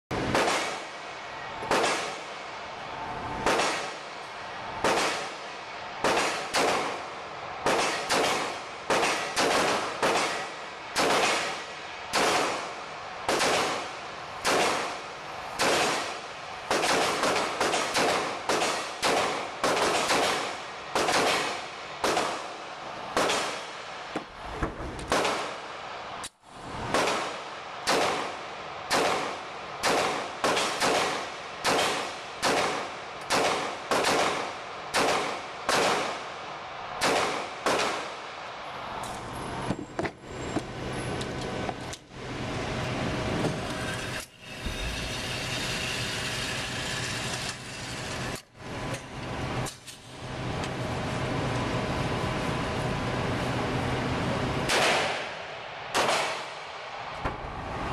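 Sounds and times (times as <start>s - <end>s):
pistol shots echoing indoors: 1.7s - 2.2s, 3.4s - 4.0s, 4.8s - 5.3s, 6.0s - 7.0s, 7.6s - 12.6s, 15.6s - 22.4s, 28.9s - 36.2s, 37.0s - 38.2s, 54.7s - 56.8s
steady low hum: 40.3s - 54.7s.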